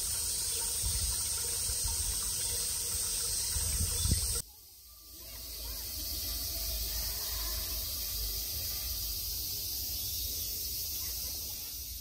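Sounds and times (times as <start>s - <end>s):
insects buzzing: 0.0s - 12.0s
wind rumbling on microphone: 3.4s - 4.4s.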